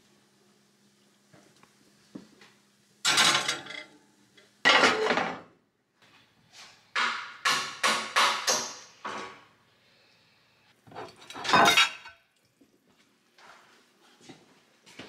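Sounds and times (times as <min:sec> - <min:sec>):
metal baking pan scraping and clattering: 0:03.1 - 0:03.9, 0:04.7 - 0:05.4, 0:10.9 - 0:12.1.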